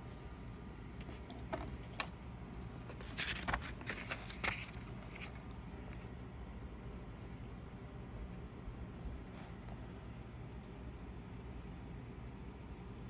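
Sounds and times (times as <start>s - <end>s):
paper pages turning: 1.0s - 6.1s.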